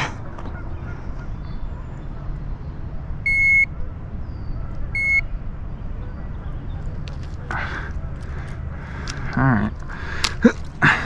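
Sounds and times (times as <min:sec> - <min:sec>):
short electronic beeps: 0:03.3 - 0:03.7, 0:05.0 - 0:05.3.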